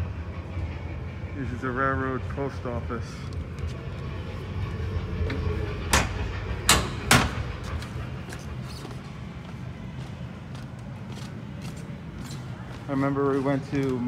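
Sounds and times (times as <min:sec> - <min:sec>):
low rumble of large hall: 0:00.0 - 0:14.0
sharp knocks: 0:05.9 - 0:07.5.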